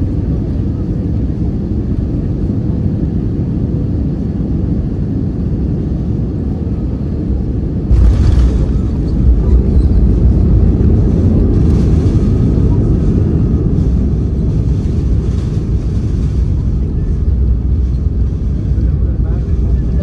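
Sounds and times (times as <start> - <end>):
aircraft engine and airflow rumble: 0.0 - 20.0.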